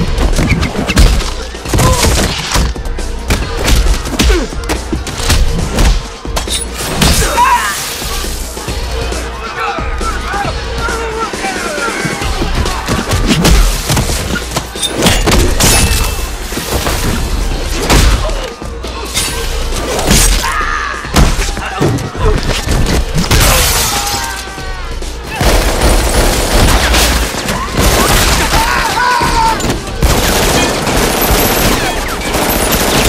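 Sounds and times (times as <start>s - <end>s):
shouts and grunts: 7.2s - 7.9s, 20.4s - 22.5s, 27.6s - 29.6s.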